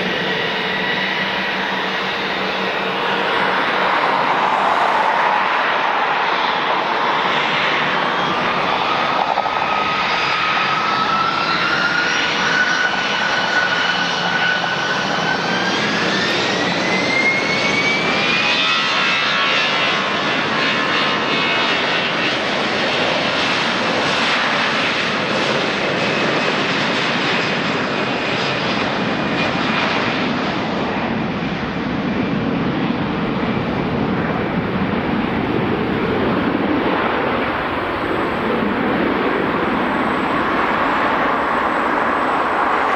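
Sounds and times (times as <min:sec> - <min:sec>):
jet engine roar: 0:00.0 - 0:42.9
jet engine whine rising: 0:00.0 - 0:42.9.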